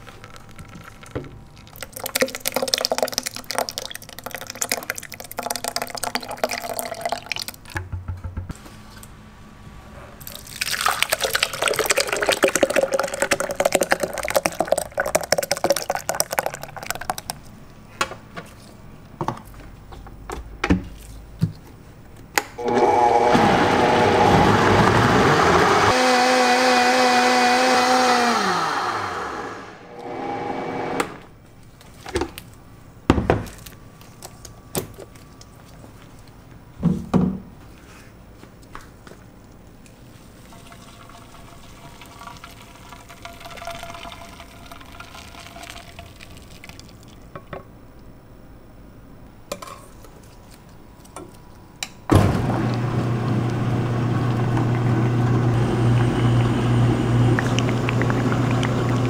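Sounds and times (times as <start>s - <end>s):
blender running: 22.6s - 31.3s, 52.2s - 59.0s
machine motor low hum: 28.3s - 31.3s.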